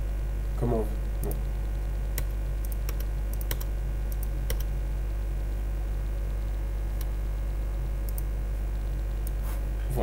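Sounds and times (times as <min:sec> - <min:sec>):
low electrical hum: 0:00.0 - 0:10.0
computer keyboard clicks: 0:02.2 - 0:04.7.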